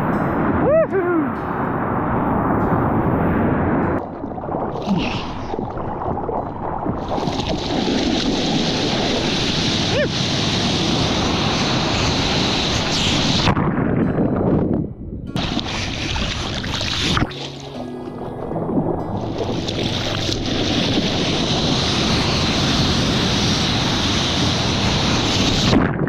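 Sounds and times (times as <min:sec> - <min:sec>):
whitewater rushing and splashing: 0:00.0 - 0:13.8, 0:15.4 - 0:26.0
wind buffeting microphone: 0:00.0 - 0:26.0
hiss of spray: 0:08.0 - 0:13.5, 0:19.9 - 0:25.8.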